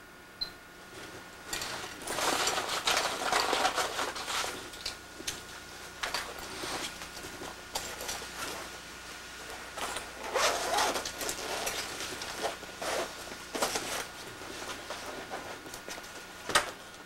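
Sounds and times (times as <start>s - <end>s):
heavy clothing rustling: 5.8s - 16.2s
zipper: 9.8s - 13.1s.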